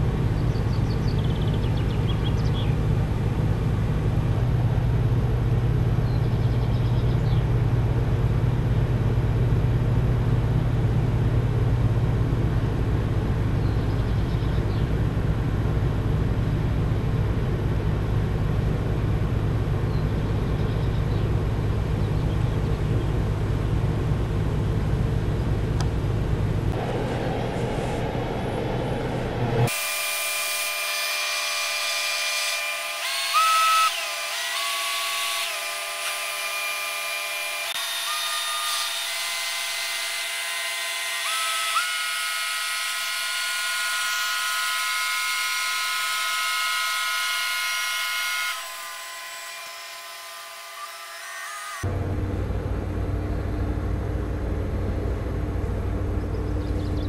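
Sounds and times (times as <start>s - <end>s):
ship diesel engine rumble: 0.0s - 30.1s, 51.9s - 57.0s.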